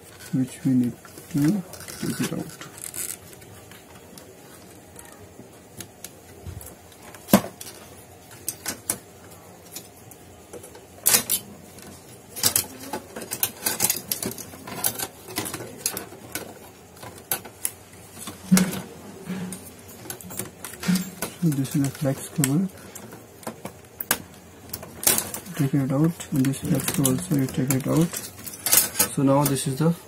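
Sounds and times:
plastic and metal parts clicking: 0:10.5 - 0:18.8.

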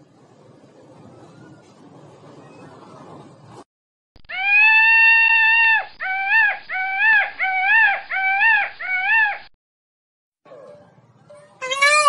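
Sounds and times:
peacock calling: 0:11.6 - 0:12.0.

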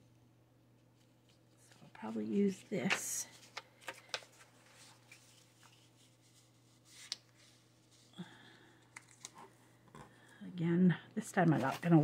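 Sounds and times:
low steady hum: 0:00.0 - 0:12.0
paper handling: 0:00.9 - 0:08.1, 0:08.9 - 0:10.0
paper rustle: 0:00.9 - 0:08.1.

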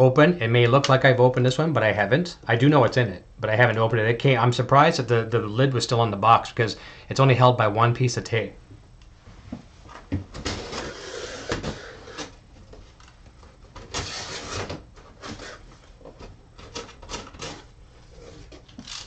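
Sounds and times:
cardboard rustling and scraping: 0:09.9 - 0:13.0, 0:13.8 - 0:18.8.

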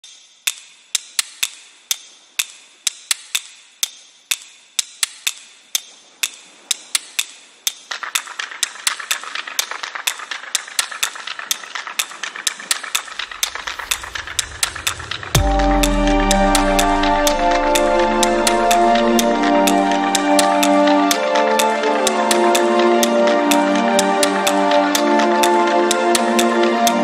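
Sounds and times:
dense crackling: 0:11.9 - 0:20.5.

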